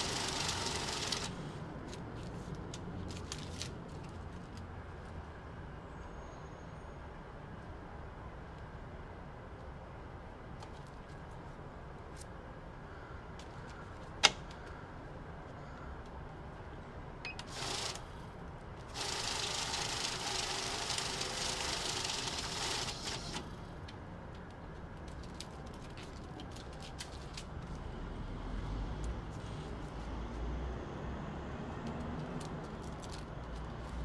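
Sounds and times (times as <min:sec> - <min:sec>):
banknote counter whirring: 0:00.0 - 0:01.4, 0:17.3 - 0:18.0, 0:18.9 - 0:23.4
paper handling clicks: 0:00.0 - 0:04.7, 0:18.8 - 0:27.8, 0:31.9 - 0:34.0.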